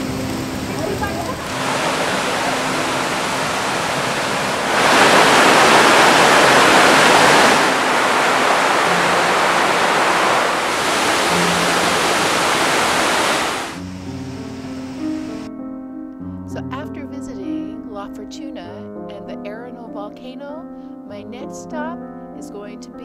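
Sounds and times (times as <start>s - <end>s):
waterfall rushing: 0.0s - 15.5s.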